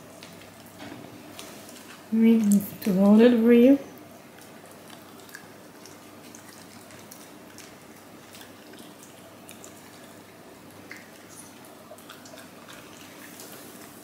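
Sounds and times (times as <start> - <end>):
dog licking and nibbling: 4.2 - 14.0.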